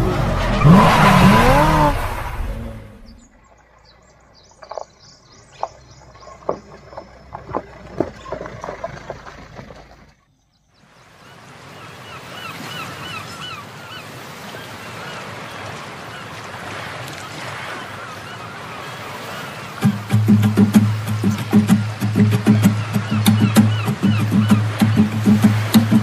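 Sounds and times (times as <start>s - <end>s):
low engine rumble: 0.0s - 4.8s, 19.9s - 26.0s
bird chirping: 0.6s - 11.2s, 21.2s - 25.4s
stones cracking under tyres: 5.6s - 10.2s.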